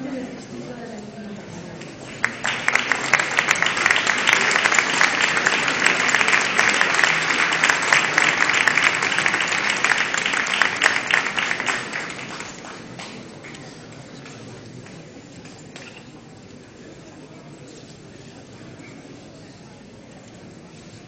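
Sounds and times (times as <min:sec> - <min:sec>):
crowd clapping: 0:01.8 - 0:15.8.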